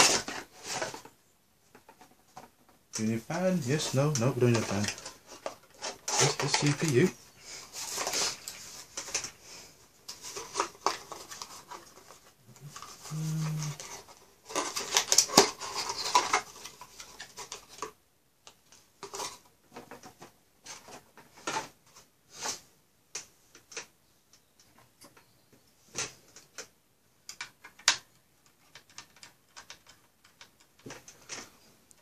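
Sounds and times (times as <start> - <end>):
plastic packaging crackling: 3.0 - 9.3, 10.1 - 17.9.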